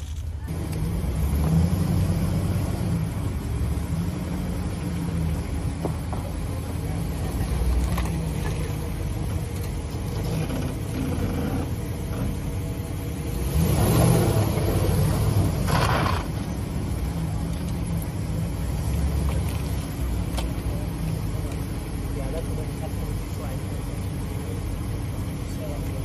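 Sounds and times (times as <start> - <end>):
vehicle engine rumbling: 0.0 - 26.0.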